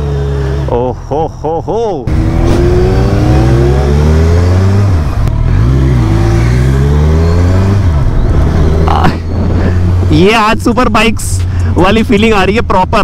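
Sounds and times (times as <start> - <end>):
motorcycle engine revving while riding: 0.0 - 0.8, 2.1 - 10.1.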